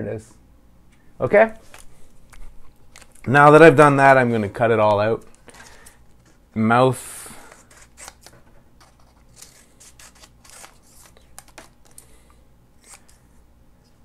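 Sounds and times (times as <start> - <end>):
paper rustle: 7.5 - 12.0
scissors snipping paper: 7.5 - 12.0.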